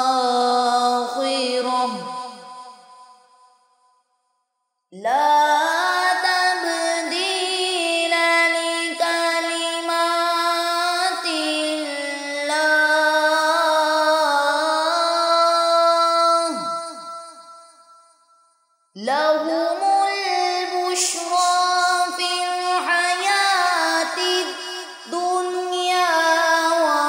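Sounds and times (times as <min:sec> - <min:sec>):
person reciting melismatic chant: 0:19.0 - 0:27.0.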